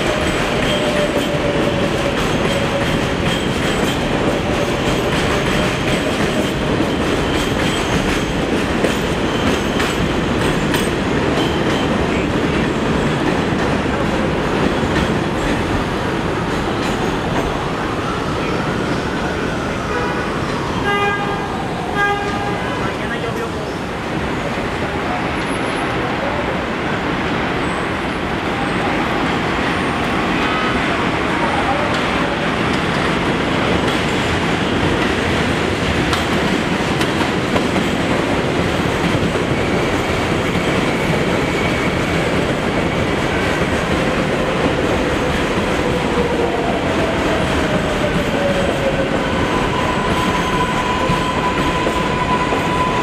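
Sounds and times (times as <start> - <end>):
train wheels clacking on rails: 0.0 - 17.8, 31.8 - 53.0.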